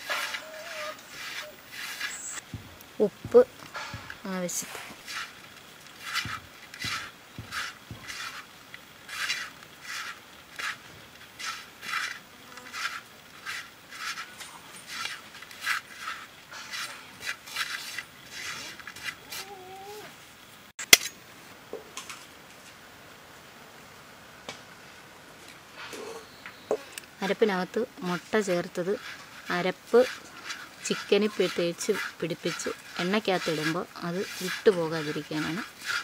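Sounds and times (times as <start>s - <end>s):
hands rubbing dry spice: 0.0s - 2.4s, 4.2s - 8.5s, 28.2s - 36.0s.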